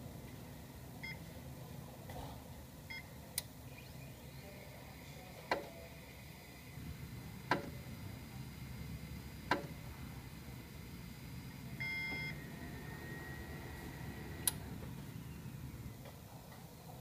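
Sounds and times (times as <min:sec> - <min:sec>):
steady low hum: 0:00.0 - 0:17.0
electronic beep: 0:11.8 - 0:12.5.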